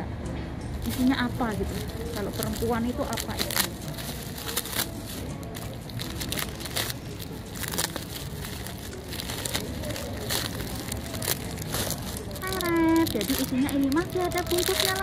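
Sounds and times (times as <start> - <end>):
plastic bag crinkling: 0.8 - 15.0.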